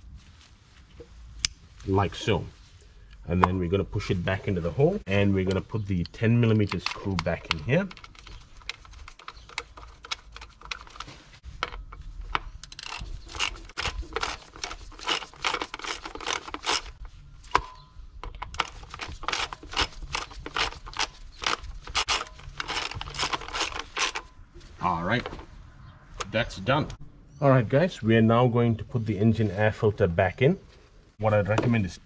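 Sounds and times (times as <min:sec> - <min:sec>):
socket ratchet clicking: 0:12.6 - 0:17.0, 0:18.4 - 0:24.3.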